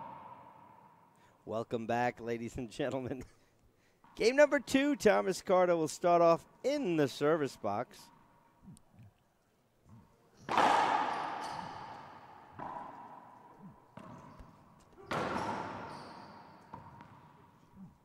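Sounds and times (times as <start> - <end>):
racquetball hits ringing off walls: 0.0 - 1.0, 10.4 - 17.6.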